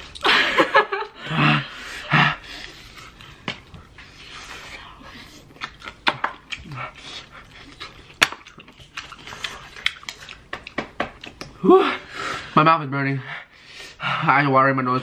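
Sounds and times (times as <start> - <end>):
hissing breaths and sniffs: 1.2 - 10.6, 12.0 - 14.4
chewing and lip smacks: 2.5 - 11.6.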